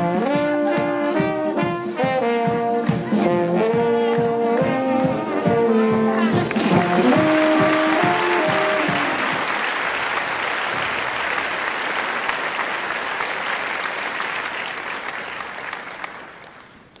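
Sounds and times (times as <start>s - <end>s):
brass band notes: 0.0s - 10.1s
audience applauding: 6.4s - 17.0s.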